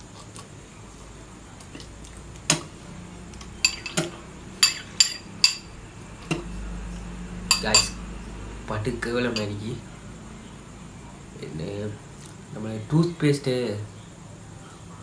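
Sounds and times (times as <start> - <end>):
metal spoon clinking ceramic bowl: 3.6 - 5.7, 7.5 - 8.0, 9.3 - 9.6.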